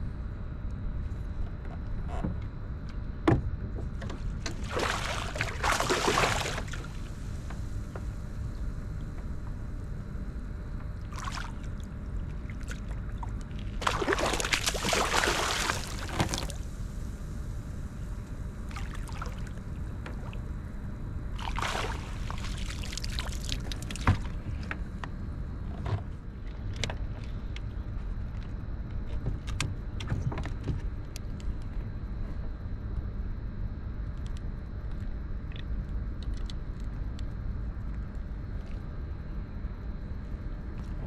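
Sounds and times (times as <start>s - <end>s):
steady low rumble: 0.0s - 41.0s
fish splashing and thrashing: 4.5s - 7.1s, 11.0s - 16.6s, 21.4s - 24.3s.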